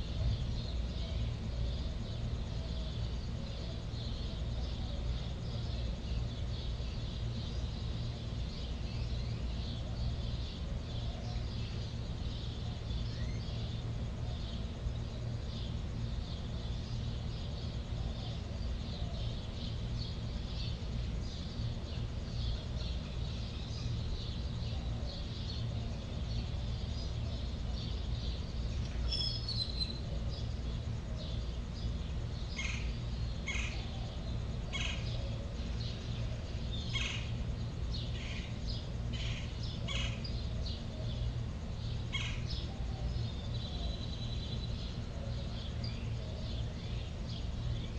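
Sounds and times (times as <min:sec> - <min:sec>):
faint high chirping: 0:00.0 - 0:47.9
steady low hum: 0:00.0 - 0:47.9.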